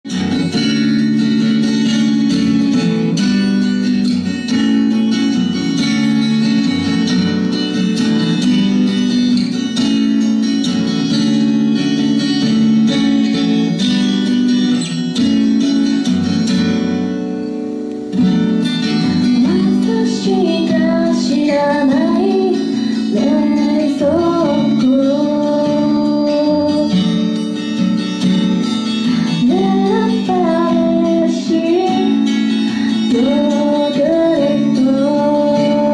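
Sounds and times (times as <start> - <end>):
acoustic guitar strumming: 0.0 - 35.9
woman singing: 19.0 - 27.7, 29.0 - 35.9.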